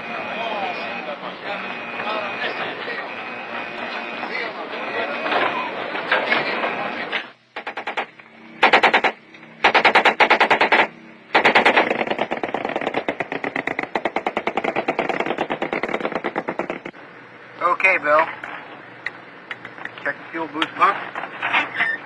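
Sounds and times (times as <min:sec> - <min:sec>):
machine gun firing in bursts: 0:07.6 - 0:16.9.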